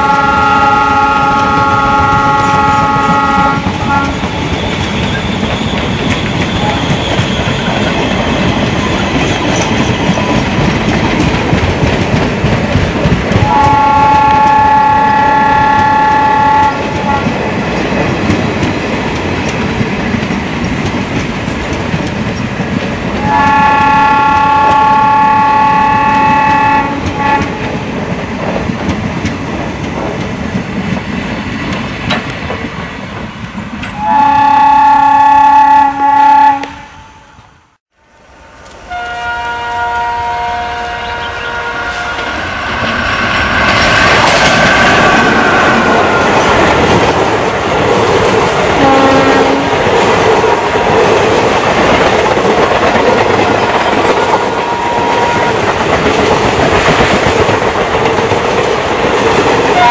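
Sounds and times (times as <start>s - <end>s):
train horn blasts: 0.0s - 4.4s, 6.6s - 7.0s, 13.4s - 17.4s, 23.2s - 27.7s, 34.0s - 37.4s, 38.9s - 42.5s, 48.8s - 49.8s, 54.3s - 55.6s
train approaching: 0.0s - 59.9s
train coaches rumbling past: 0.0s - 59.9s
wheels clicking over rail joints: 3.4s - 13.8s.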